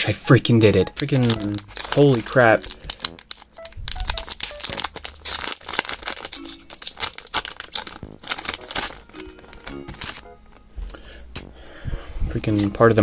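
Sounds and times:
foil wrapper tearing and crinkling: 0.9s - 10.3s.

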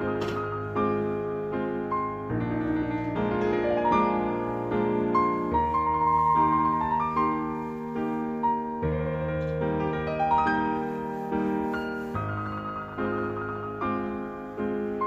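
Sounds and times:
slow piano music: 0.0s - 15.0s.

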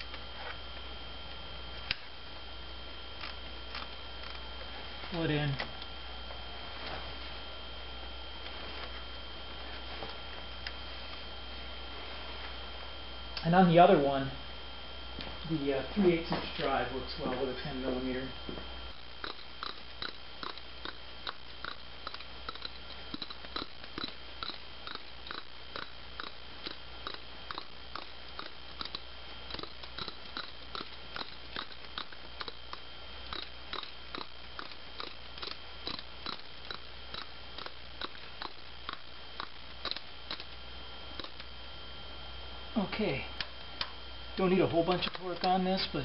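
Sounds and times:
ratchet clicking: 19.2s - 32.6s, 33.3s - 40.6s, 41.2s - 41.5s.

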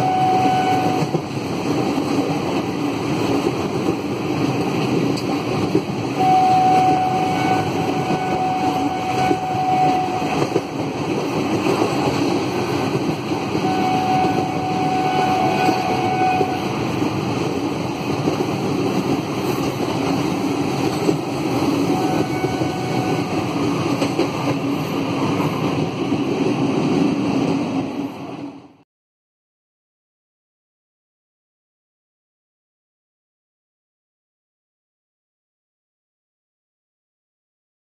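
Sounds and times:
train running on rails: 0.0s - 28.8s
high whistling tone: 6.2s - 10.4s.

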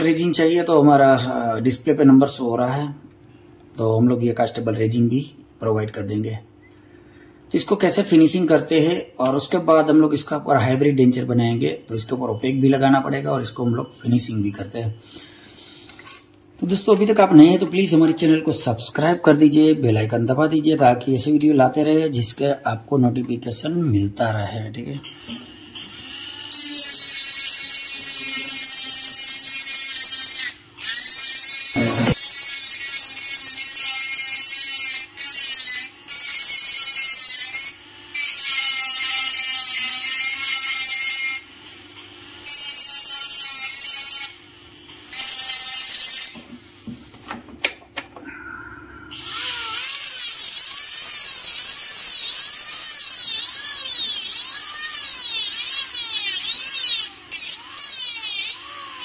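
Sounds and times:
dental handpiece grinding metal: 25.8s - 41.5s, 42.4s - 44.4s, 45.1s - 46.4s, 49.1s - 59.0s.

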